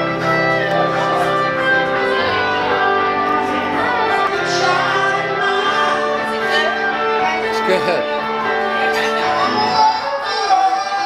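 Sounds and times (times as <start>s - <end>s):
guitar background music: 0.0s - 11.0s.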